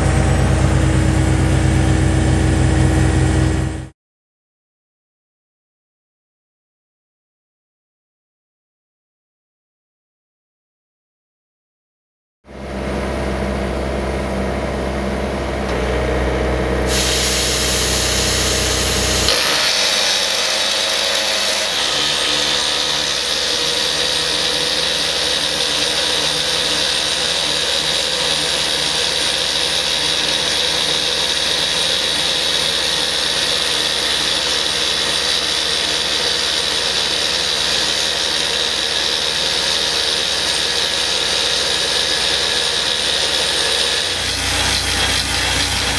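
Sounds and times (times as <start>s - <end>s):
deep engine sound: 0.0s - 3.9s, 12.5s - 45.9s
hiss of flushing air: 16.9s - 30.2s
rock drill drilling into rock: 16.9s - 45.9s.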